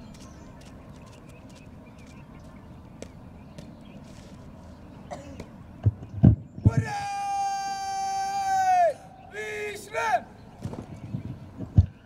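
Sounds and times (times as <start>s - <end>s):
boots marching on dirt: 0.1s - 4.7s.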